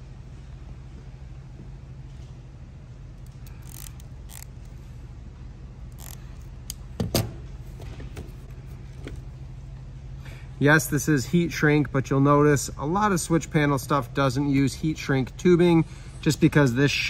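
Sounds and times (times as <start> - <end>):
steady low hum: 0.0 - 17.0
wires being handled: 3.2 - 4.9, 5.9 - 6.9.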